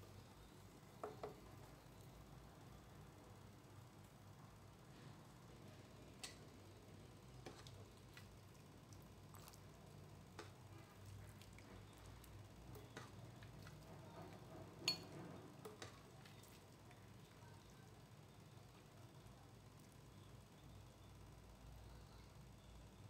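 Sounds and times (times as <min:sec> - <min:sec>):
ladle and glass bowl clinking on pot: 0:14.8 - 0:16.0.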